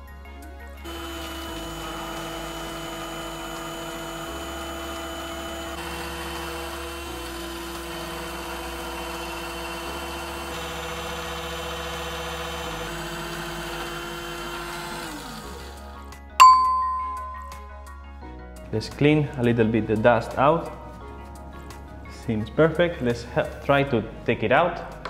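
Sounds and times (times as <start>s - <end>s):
milling machine spindle whining: 0.9s - 16.1s.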